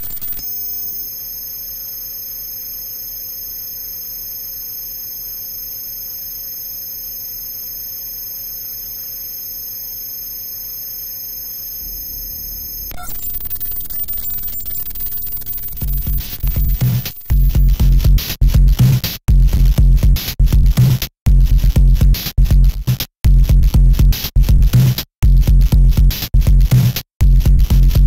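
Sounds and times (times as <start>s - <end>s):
crackling static: 0.0s - 1.1s, 11.8s - 17.9s.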